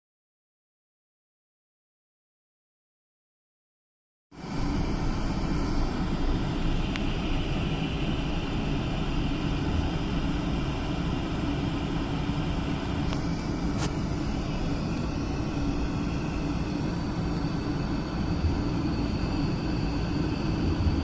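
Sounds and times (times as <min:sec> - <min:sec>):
jet engines droning in cabin: 0:04.3 - 0:21.0.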